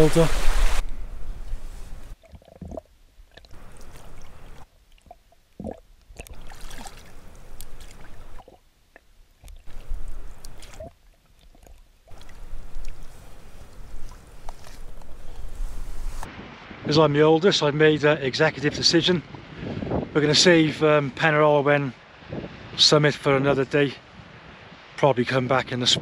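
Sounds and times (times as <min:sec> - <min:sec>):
water sloshing and gurgling: 0:00.4 - 0:16.5.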